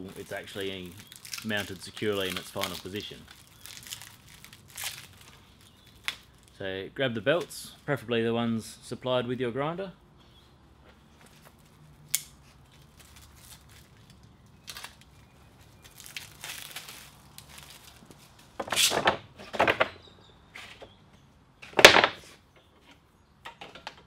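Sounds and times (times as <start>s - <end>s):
plastic crinkling and rustling: 0.0s - 6.6s, 11.2s - 18.6s
plastic wrapping cut and torn: 0.0s - 6.6s, 12.1s - 15.2s, 15.8s - 18.1s.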